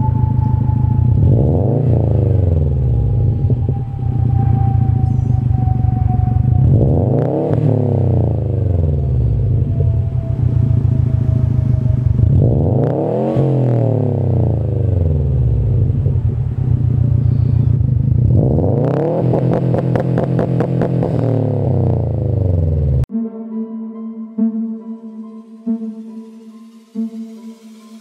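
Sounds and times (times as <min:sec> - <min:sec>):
soft electronic music: 0:00.0 - 0:13.3, 0:23.0 - 0:28.0
car engine revving: 0:00.0 - 0:23.1.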